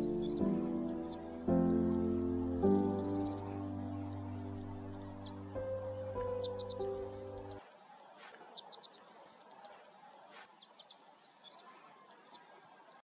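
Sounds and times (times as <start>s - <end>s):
piano music: 0.0s - 7.6s
songbird singing: 0.0s - 13.0s.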